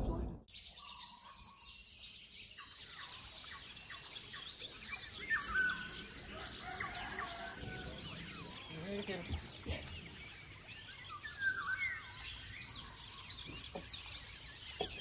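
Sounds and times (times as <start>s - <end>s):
birds chirping: 0.5s - 15.0s.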